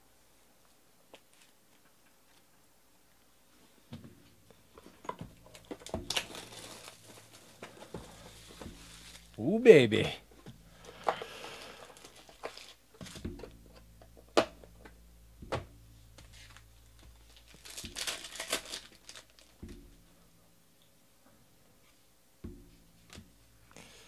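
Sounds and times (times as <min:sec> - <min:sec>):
foil wrapper crinkling and tearing: 0:05.5 - 0:09.4, 0:10.8 - 0:13.2, 0:17.2 - 0:19.6
cards and boxes clicking: 0:10.8 - 0:13.3, 0:17.3 - 0:19.6.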